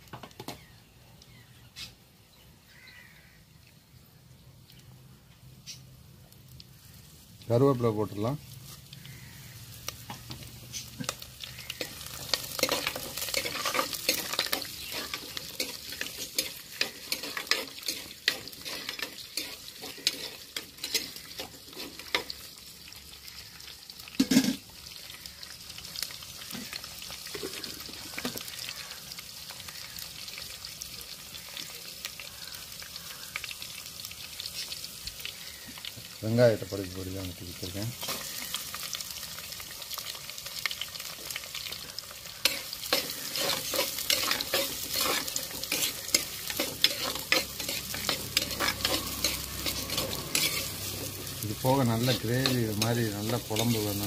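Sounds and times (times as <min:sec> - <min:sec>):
spices sizzling and popping in oil: 0:00.0 - 0:54.0
metal spoon scraping a clay pot: 0:11.8 - 0:22.3, 0:42.5 - 0:54.0.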